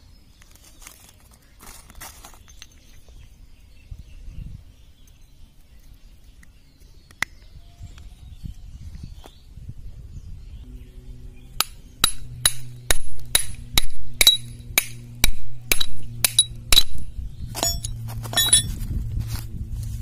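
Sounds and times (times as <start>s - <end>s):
hammer striking metal: 11.6s - 17.0s, 17.6s - 18.7s
light metal clinks: 17.6s - 18.8s.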